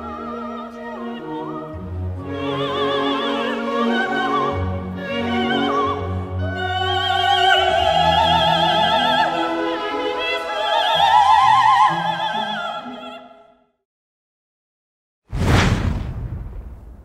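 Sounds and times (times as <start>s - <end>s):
operatic singing: 0.0s - 13.5s.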